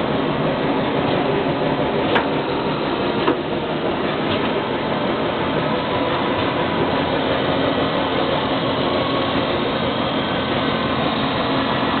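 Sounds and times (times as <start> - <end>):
drilling machine humming: 0.0 - 12.0.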